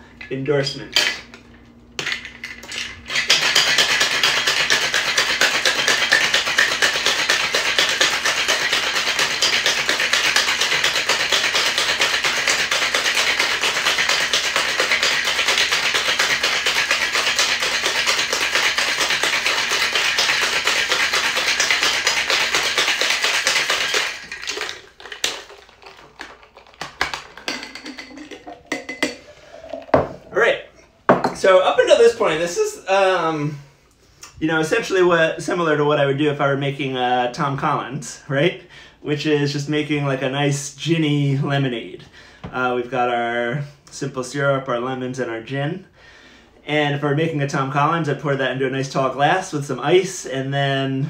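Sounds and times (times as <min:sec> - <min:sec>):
ice rattling in cocktail shaker: 0:02.0 - 0:30.3
shaker clinks and knocks: 0:02.0 - 0:30.3.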